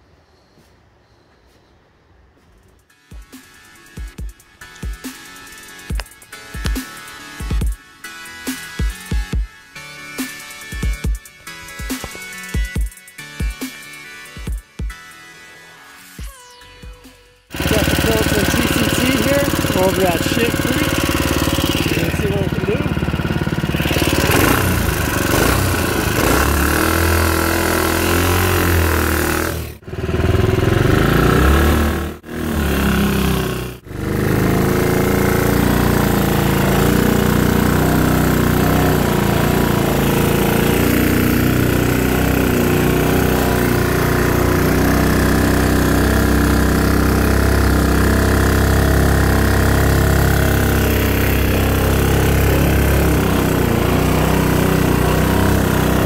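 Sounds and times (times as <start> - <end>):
single-cylinder engine running: 17.5 - 56.0.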